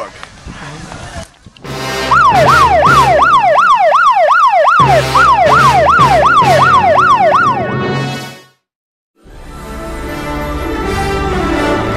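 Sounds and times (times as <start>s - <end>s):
siren wailing yelp: 2.0s - 7.9s.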